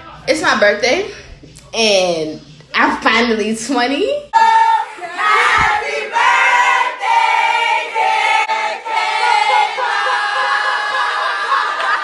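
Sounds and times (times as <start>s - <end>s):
voices singing in chorus: 4.4s - 12.0s.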